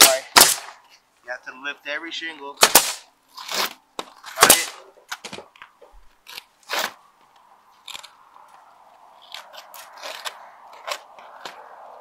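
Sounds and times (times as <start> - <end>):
knife scraping through shingle: 3.3 - 4.4, 6.2 - 7.0, 9.2 - 11.5.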